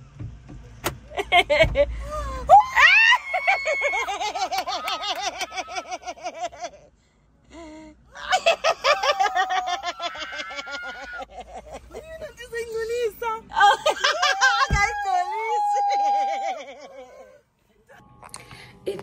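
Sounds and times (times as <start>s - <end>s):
woman shrieking: 2.3s - 4.2s, 13.6s - 17.4s
woman laughing: 3.1s - 6.8s, 8.2s - 12.4s, 13.5s - 17.4s.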